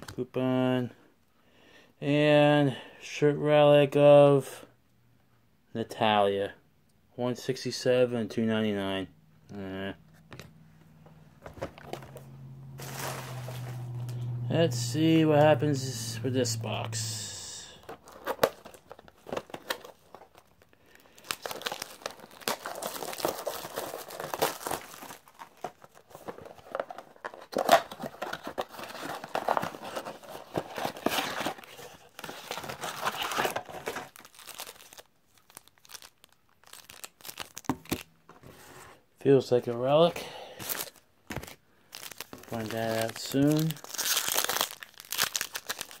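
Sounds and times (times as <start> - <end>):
contents being handled: 10.1 - 38.7, 40.6 - 46.0
plastic wrap crinkling and tearing: 11.6 - 15.2, 16.6 - 38.2, 40.6 - 46.0
cardboard box being opened: 12.8 - 14.1, 21.4 - 34.9.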